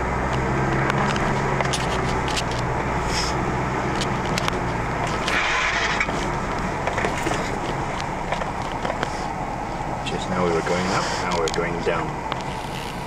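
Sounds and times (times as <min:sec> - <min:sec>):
engine running at low revs: 0:00.0 - 0:13.0
clicks and knocks from bumps: 0:03.9 - 0:05.4, 0:06.0 - 0:09.1.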